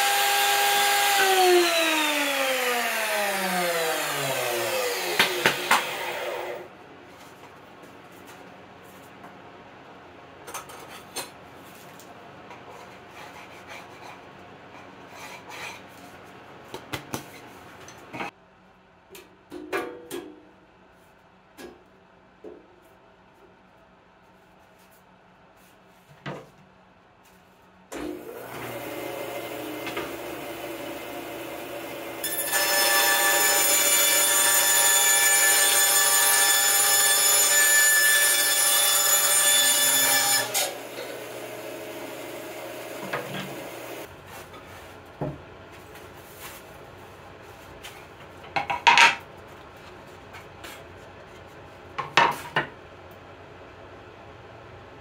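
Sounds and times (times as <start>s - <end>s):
bandsaw cutting plywood: 0.0s - 6.7s, 28.3s - 44.1s
bandsaw running: 0.0s - 6.7s, 28.3s - 44.1s.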